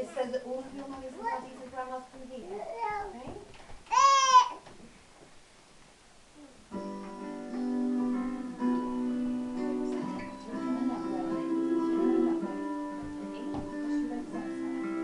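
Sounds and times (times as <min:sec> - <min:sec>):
strummed acoustic guitar: 0:06.7 - 0:15.0.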